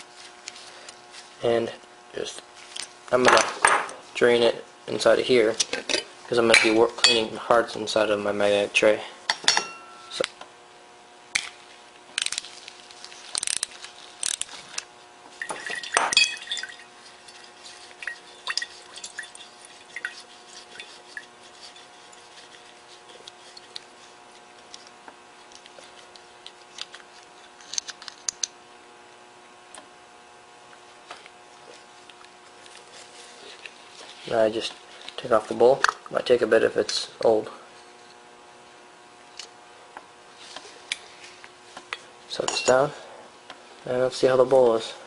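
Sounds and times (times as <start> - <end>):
fuel dripping into glass jar: 15.4 - 16.9.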